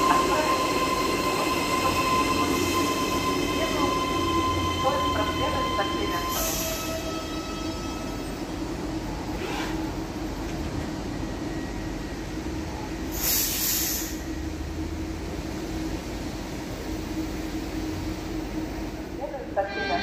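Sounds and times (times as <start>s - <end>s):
electric train humming: 0.0s - 13.2s.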